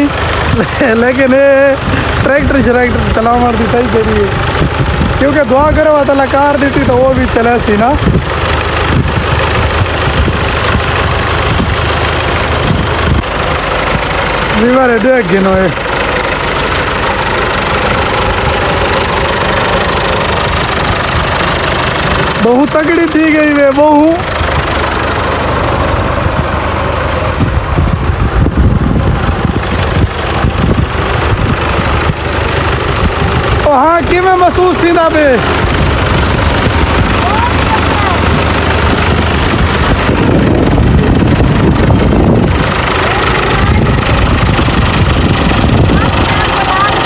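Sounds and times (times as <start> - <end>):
tractor diesel engine running: 0.0 - 47.0.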